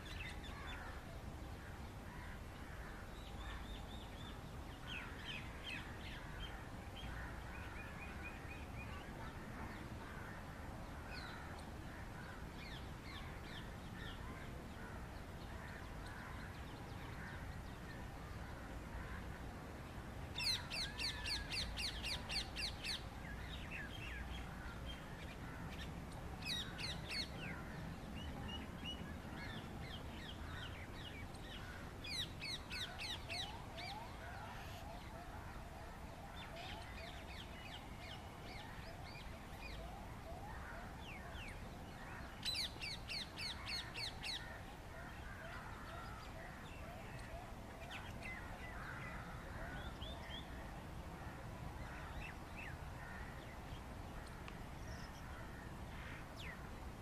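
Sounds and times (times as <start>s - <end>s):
faint bird calls: 20.3s - 56.8s.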